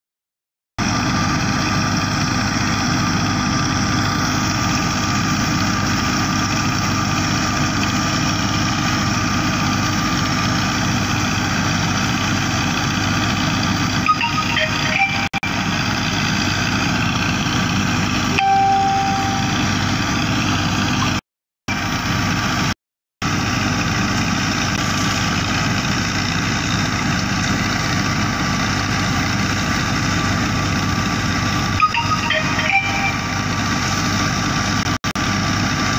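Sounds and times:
tractor diesel engine droning: 0.8s - 35.9s
short high steady tone: 14.0s - 15.8s, 18.3s - 20.1s, 31.7s - 34.2s.

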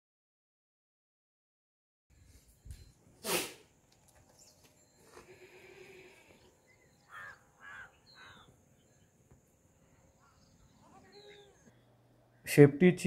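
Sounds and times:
harsh animal calls: 5.0s - 8.6s.

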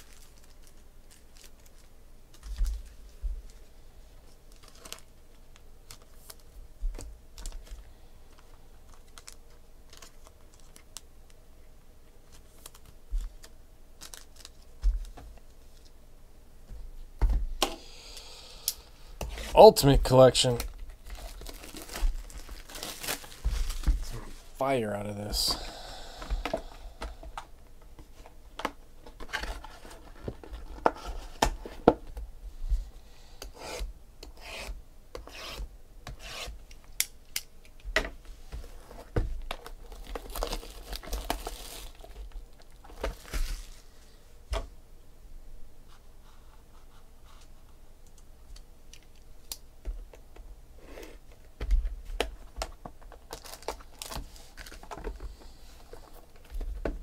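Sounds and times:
wrappers and cardboard rustling: 0.0s - 6.6s, 7.3s - 11.0s, 12.2s - 15.9s, 20.3s - 24.6s, 29.0s - 31.9s, 38.3s - 44.1s, 51.4s - 57.0s
card packs tapping and clicking: 51.4s - 57.0s.

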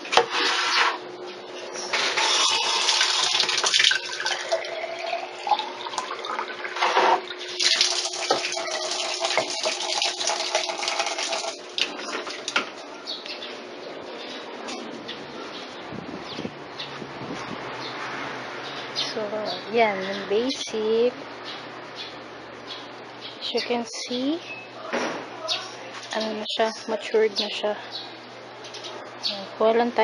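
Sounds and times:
tap water filling a glass bottle: 2.3s - 12.6s.

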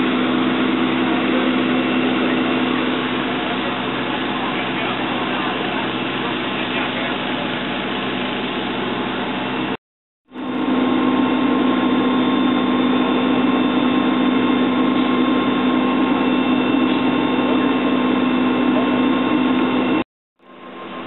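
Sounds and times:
vehicle engine idling: 0.0s - 9.8s.

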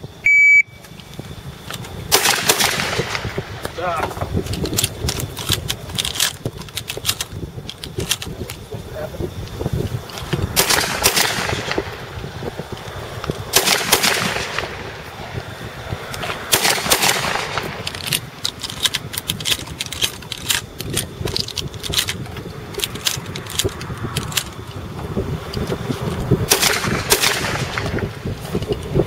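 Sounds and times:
shotgun blasts: 2.1s - 3.9s, 10.5s - 12.1s, 13.5s - 15.3s, 16.5s - 17.8s, 26.4s - 28.2s
shells loading metallic clicks: 4.4s - 8.6s, 16.1s - 24.8s, 25.5s - 28.9s.

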